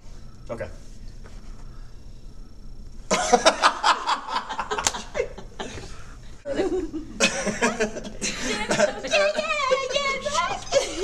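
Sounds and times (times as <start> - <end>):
man laughing hard: 3.1 - 5.8, 6.6 - 9.5.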